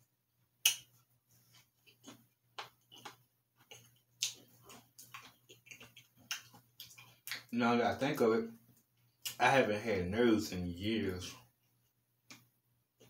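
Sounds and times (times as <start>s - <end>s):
chewing with wet mouth clicks: 1.5s - 7.5s.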